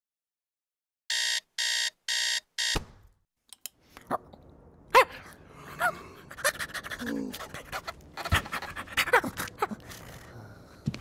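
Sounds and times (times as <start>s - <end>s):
alarm clock beeping: 1.1s - 2.8s.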